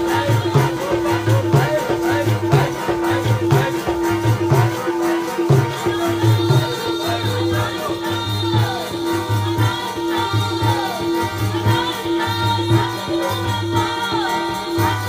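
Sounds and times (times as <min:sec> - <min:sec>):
harmonium playing: 0:00.0 - 0:15.0
tabla rhythm: 0:00.0 - 0:15.0
woman singing a hymn: 0:04.7 - 0:15.0.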